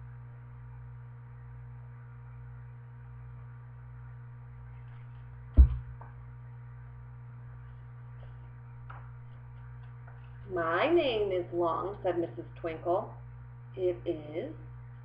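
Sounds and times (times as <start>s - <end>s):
low electrical hum: 0.0s - 15.0s
book set down with knock: 5.6s - 5.9s.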